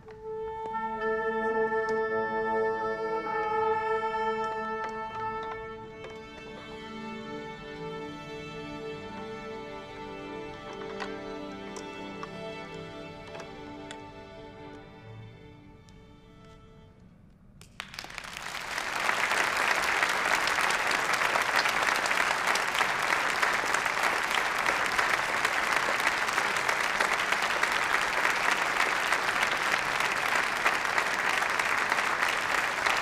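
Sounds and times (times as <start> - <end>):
audience applauding: 17.6 - 33.0.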